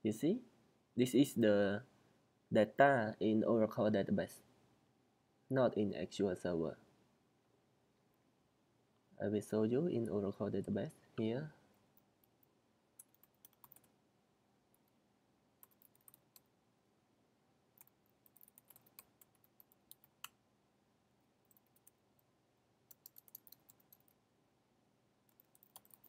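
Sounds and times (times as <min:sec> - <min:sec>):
keyboard typing clicks: 0:13.0 - 0:13.9, 0:15.6 - 0:16.5, 0:22.9 - 0:24.2, 0:25.3 - 0:26.0.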